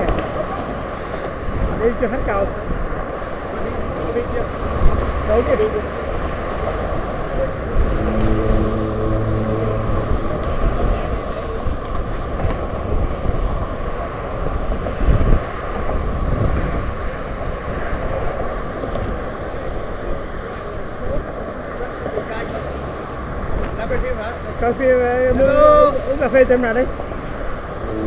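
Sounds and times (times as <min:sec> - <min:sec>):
wind rumble on microphone: 0:00.0 - 0:28.0
low gust: 0:02.5 - 0:21.4, 0:26.9 - 0:28.0
car traffic rushing past: 0:02.9 - 0:12.2
low hum: 0:04.4 - 0:12.8, 0:27.3 - 0:28.0.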